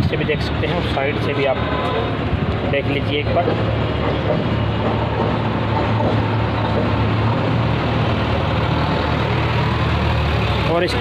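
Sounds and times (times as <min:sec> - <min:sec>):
tractor diesel engine idling: 0:02.8 - 0:11.0.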